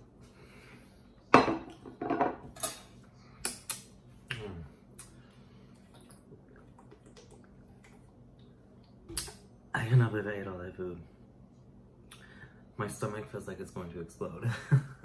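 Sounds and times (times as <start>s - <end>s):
dishes clattering on table: 1.3s - 2.9s
dishes clinking and knocking: 1.3s - 2.9s.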